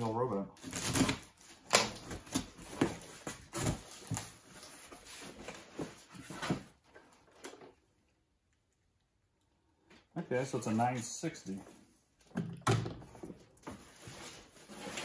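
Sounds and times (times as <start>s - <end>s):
packing tape tearing: 0.6s - 4.7s
cardboard flaps rustling and scraping: 0.6s - 7.5s, 13.1s - 15.0s.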